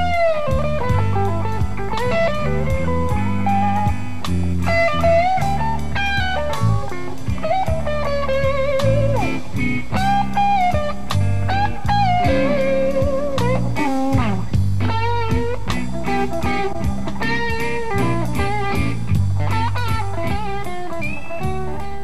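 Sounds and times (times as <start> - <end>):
bass notes: 0.0 - 22.0
blues-rock music: 0.0 - 22.0
electric guitar lead: 0.0 - 22.0.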